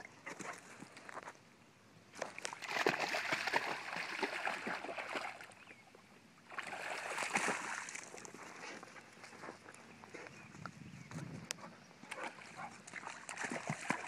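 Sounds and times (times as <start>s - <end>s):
dog splashing through water: 2.2s - 5.6s, 6.5s - 8.6s, 12.1s - 14.0s.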